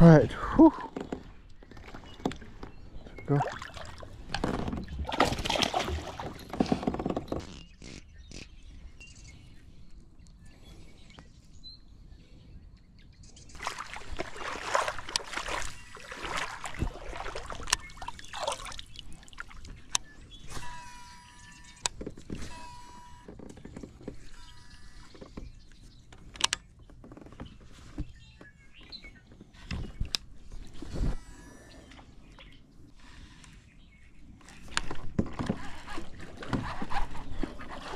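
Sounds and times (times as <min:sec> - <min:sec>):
water splashing and sloshing: 0:00.7 - 0:07.6, 0:13.5 - 0:20.9, 0:34.4 - 0:37.9.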